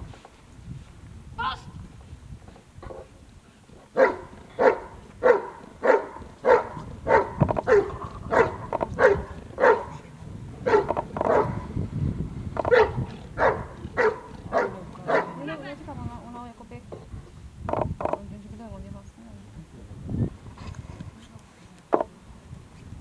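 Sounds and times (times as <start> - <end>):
dog barking: 4.0 - 10.0, 10.6 - 11.7, 12.6 - 15.5.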